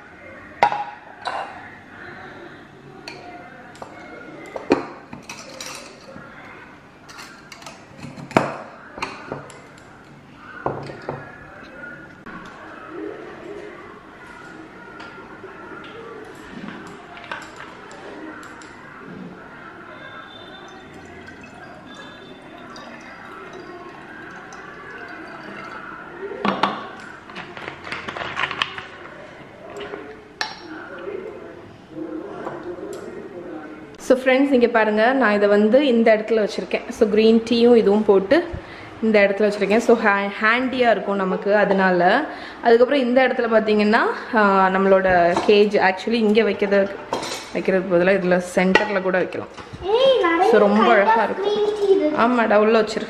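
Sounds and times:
liquid trickling into glass bottle: 0:20.3 - 0:27.1.

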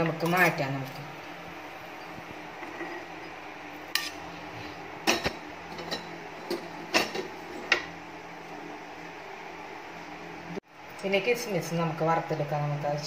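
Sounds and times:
metal utensils and pan clinking: 0:03.9 - 0:04.2.

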